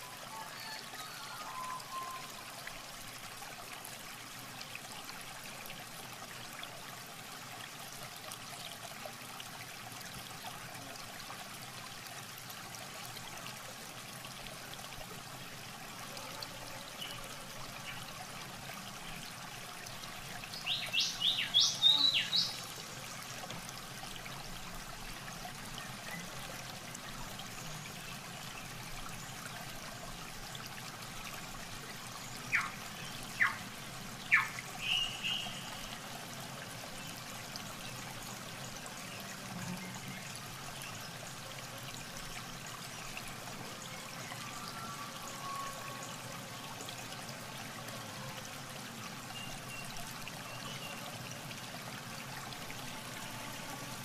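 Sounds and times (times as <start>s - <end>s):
water trickling: 0.0s - 54.0s
bird chirps: 34.3s - 35.7s.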